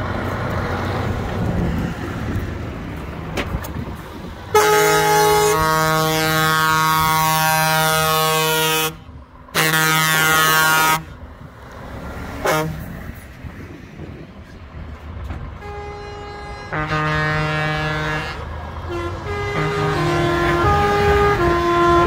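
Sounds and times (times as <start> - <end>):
truck engine and tyres passing: 0.0 - 22.0
truck air horn blasts: 4.5 - 11.2, 12.4 - 13.1, 15.5 - 22.0.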